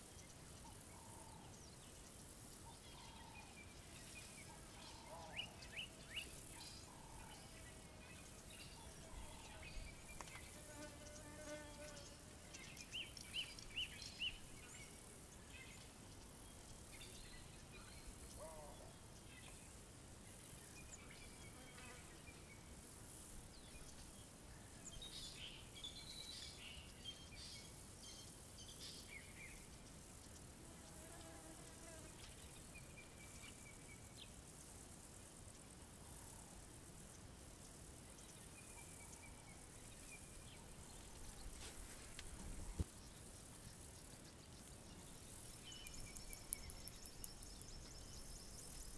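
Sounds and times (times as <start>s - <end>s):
faint insect buzzing: 0.0s - 48.9s
sharp bird chirps: 45.7s - 48.9s.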